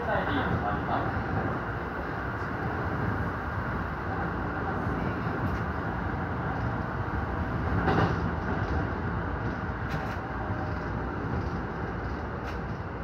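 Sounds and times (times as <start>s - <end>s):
train wheels rumbling on rails: 0.0s - 13.0s
train clatter: 4.1s - 13.0s.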